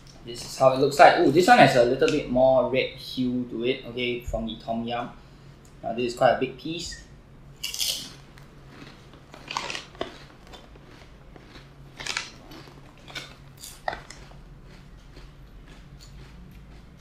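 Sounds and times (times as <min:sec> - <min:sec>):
crunchy snack being chewed: 0:07.6 - 0:17.0.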